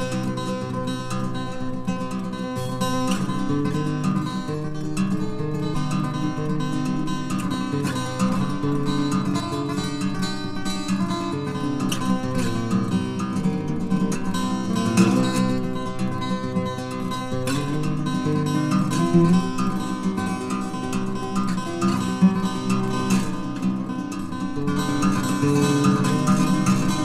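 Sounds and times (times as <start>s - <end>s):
acoustic guitar strummed and plucked: 0.0s - 27.0s.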